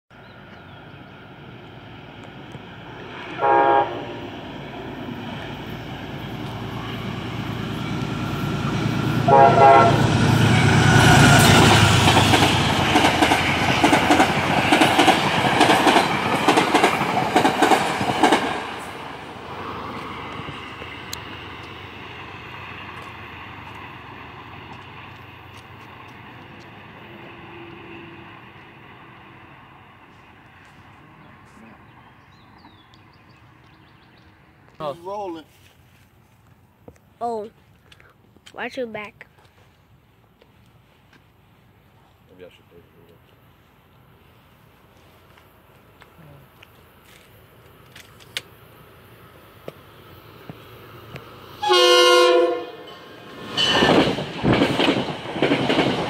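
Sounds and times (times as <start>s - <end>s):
train horn blasts: 3.3s - 4.2s, 9.2s - 11.6s, 51.6s - 53.0s
train wheels clattering over rails: 10.2s - 19.0s, 53.2s - 56.0s.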